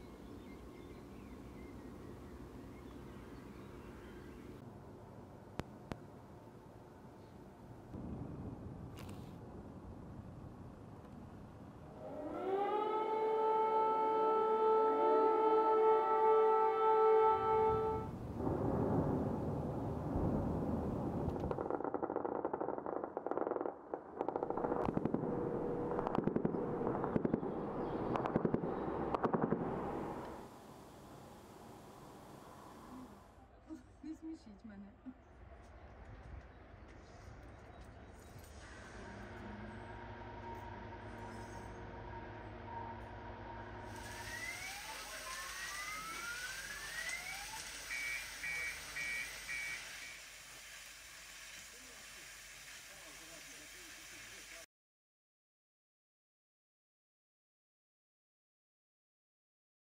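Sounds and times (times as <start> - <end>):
rapid machine-gun fire: 21.5 - 30.0
steady hiss: 30.2 - 33.4, 43.8 - 54.7
car alarm wailing and beeping: 47.9 - 50.1.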